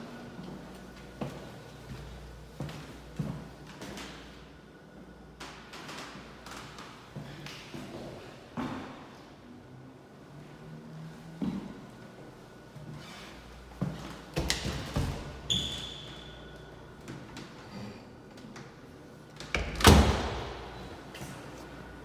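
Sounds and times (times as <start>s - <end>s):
door squeak: 15.5s - 16.5s
door shutting with a thud: 19.6s - 20.7s.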